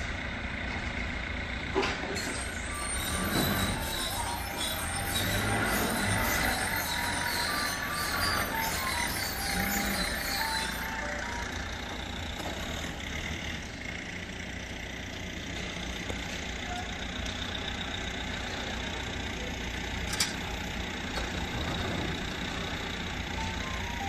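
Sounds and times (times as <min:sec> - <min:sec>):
vehicle engine idling: 0:00.0 - 0:24.0.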